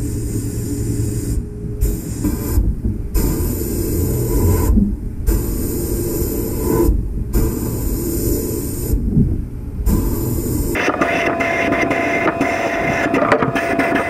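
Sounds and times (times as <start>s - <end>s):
constant low rumble: 0.0s - 11.0s.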